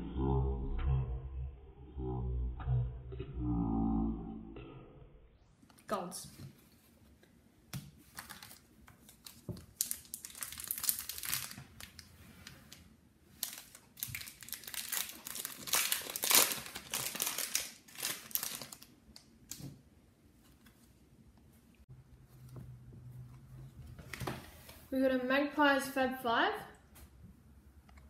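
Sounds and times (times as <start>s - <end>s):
foil wrapper tearing and crinkling: 8.2s - 12.1s, 13.4s - 19.6s.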